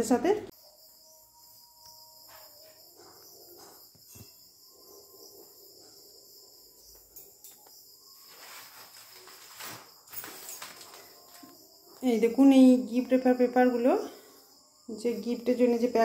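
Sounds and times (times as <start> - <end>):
crickets trilling: 0.0 - 16.0
rustling handling noise: 8.1 - 11.6.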